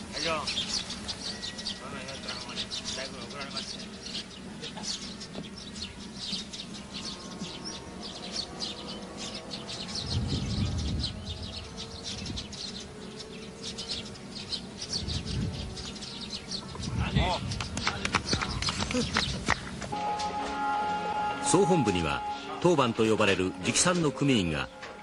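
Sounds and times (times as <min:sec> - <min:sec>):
small birds chirping: 0:00.0 - 0:20.5
low rumble: 0:08.8 - 0:12.6.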